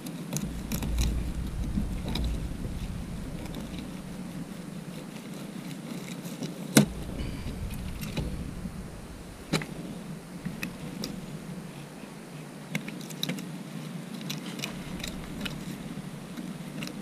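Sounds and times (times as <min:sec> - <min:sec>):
low hum: 0:00.4 - 0:05.6, 0:06.8 - 0:12.6, 0:14.6 - 0:17.0.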